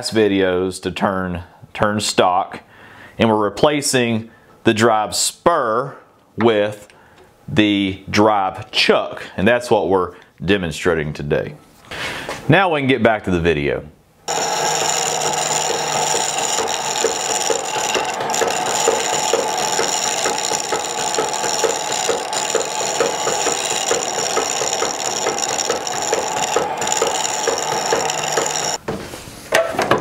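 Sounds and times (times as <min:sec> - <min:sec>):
chisel scraping spinning wood: 0:14.3 - 0:28.8
lathe ticking: 0:14.3 - 0:28.8.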